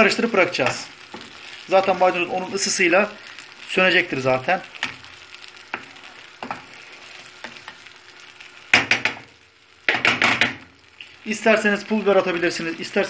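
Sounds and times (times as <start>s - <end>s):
low sizzle: 0.0s - 13.0s
spatula scraping frying pan: 4.8s - 10.6s.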